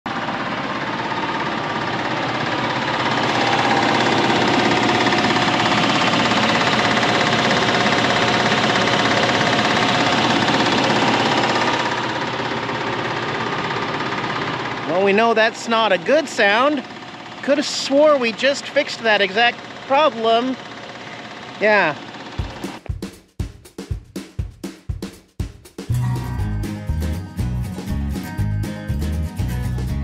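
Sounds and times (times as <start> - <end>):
engine knocking: 0.1 - 22.9.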